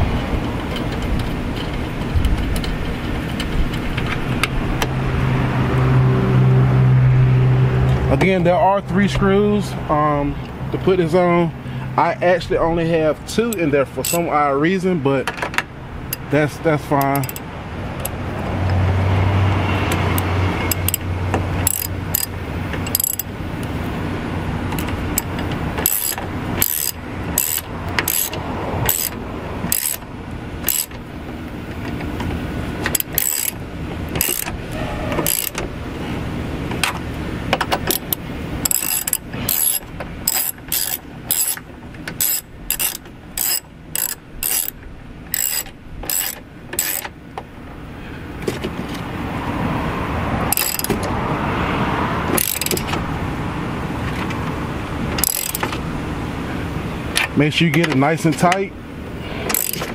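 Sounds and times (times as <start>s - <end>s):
ratchet wrench clicking: 13.5s - 14.3s, 16.9s - 18.2s, 20.1s - 23.3s, 24.7s - 31.0s, 32.8s - 35.6s, 37.8s - 47.1s, 50.5s - 51.1s, 52.3s - 53.0s, 55.2s - 55.8s, 59.5s - 59.9s.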